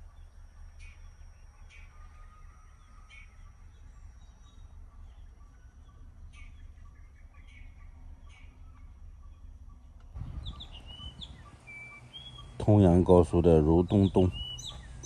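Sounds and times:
truck engine rumble in cab: 0.0s - 15.0s
short bird chirps: 14.2s - 15.0s.

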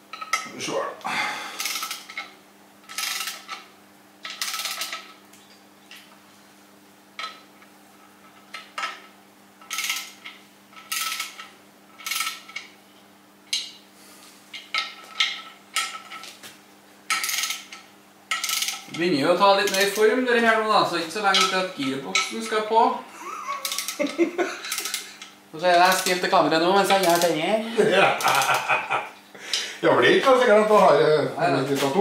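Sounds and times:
steady low hum: 0.0s - 32.0s
ratchet wrench clicking: 9.7s - 12.7s, 23.6s - 24.0s, 24.7s - 26.2s.

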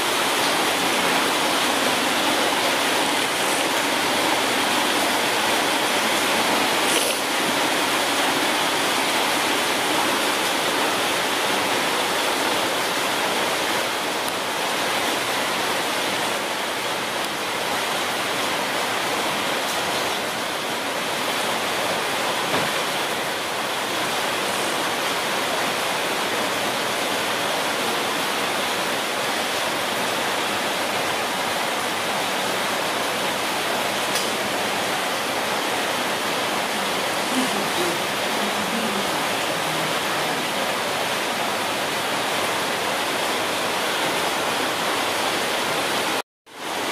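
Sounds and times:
steady rushing hiss: 0.0s - 15.0s.

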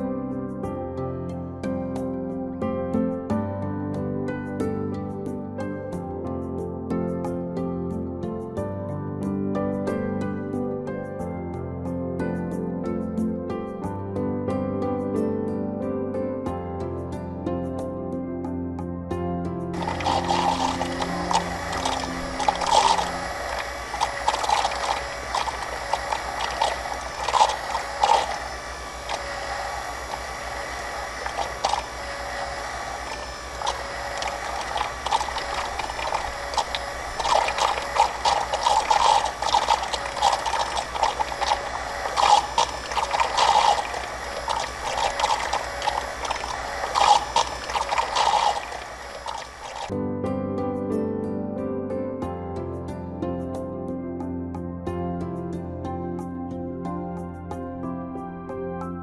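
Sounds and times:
soft music: 0.0s - 59.0s
pump clattering: 19.8s - 49.9s.

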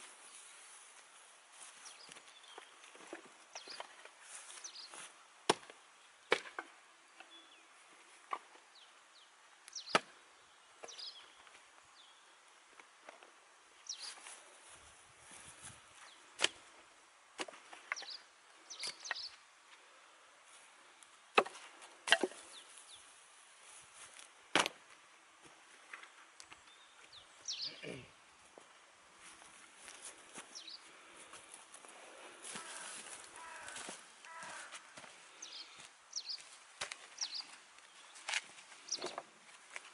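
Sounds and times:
dry sticks knocking together: 21.3s - 22.5s.

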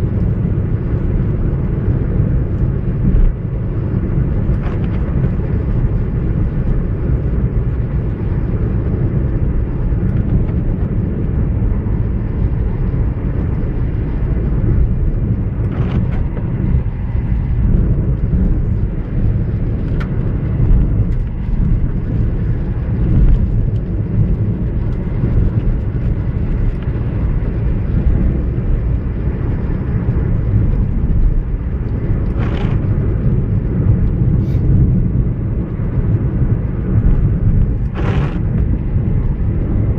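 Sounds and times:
car driving on wet road: 0.0s - 39.9s
windscreen wiper swishing: 12.2s - 39.9s.

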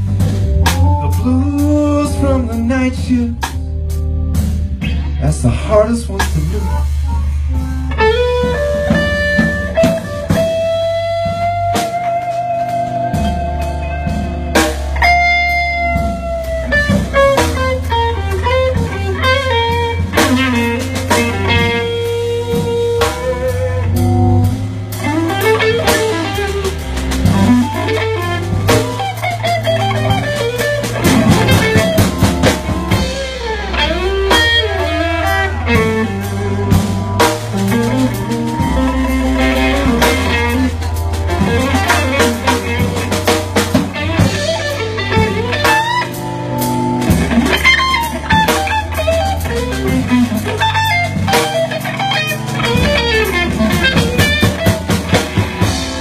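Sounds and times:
bass line: 0.0s - 56.0s
drum kit: 0.0s - 56.0s
electric blues guitar solo: 4.4s - 56.0s.

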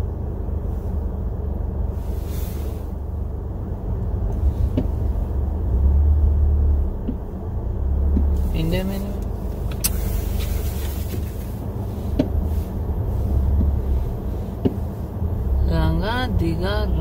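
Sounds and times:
car interior rumble: 0.0s - 17.0s.

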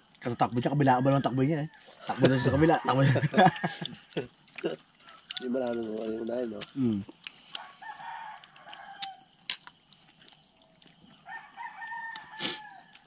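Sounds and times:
rooster crowing: 0.8s - 4.2s, 5.0s - 5.6s, 7.5s - 9.4s, 11.2s - 13.0s.

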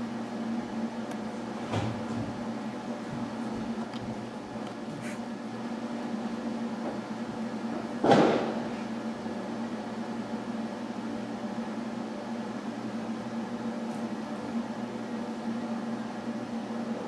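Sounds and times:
steady low fan hum: 0.0s - 17.0s.

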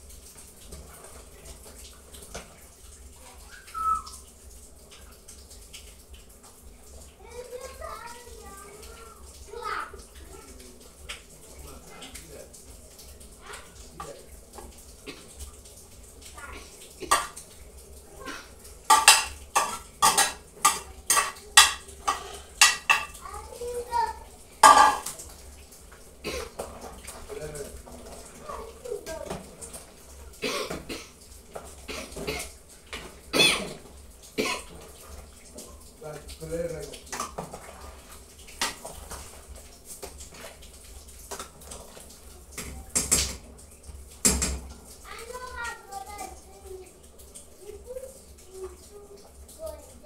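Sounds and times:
spoon clinking against pot: 24.6s - 25.0s.

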